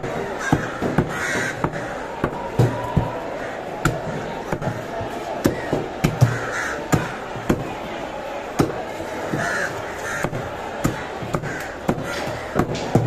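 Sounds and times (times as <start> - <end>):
crows cawing: 0.3 - 2.1, 3.2 - 4.4, 5.5 - 7.1, 9.3 - 10.5, 11.4 - 12.7.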